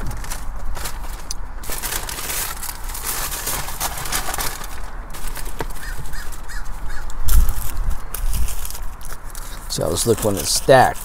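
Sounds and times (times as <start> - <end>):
wrappers crackling and rustling: 0.0 - 11.0
bird calls: 5.8 - 7.2.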